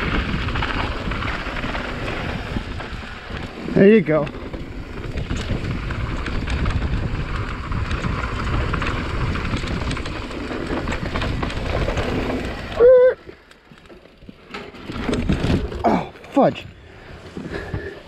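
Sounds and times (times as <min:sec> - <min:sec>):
wind on microphone: 0:00.0 - 0:13.3
bike tyres rumbling on dirt: 0:00.0 - 0:18.0.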